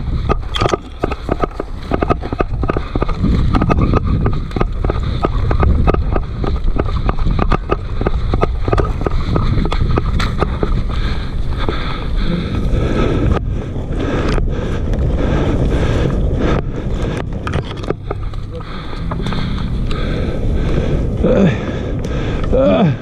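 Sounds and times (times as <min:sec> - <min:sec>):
running footsteps on dry grass: 0:00.0 - 0:23.0
wind on microphone: 0:00.0 - 0:23.0.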